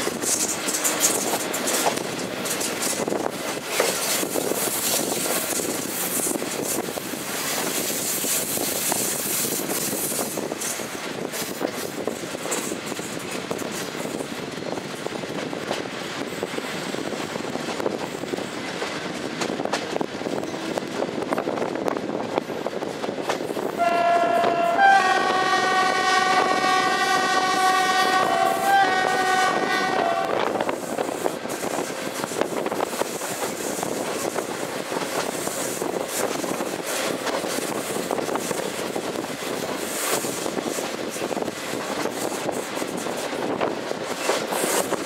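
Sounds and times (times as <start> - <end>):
wheels clattering on rails: 0.0 - 23.8
wind at train window: 0.0 - 45.0
two-note train horn blast: 23.8 - 30.8.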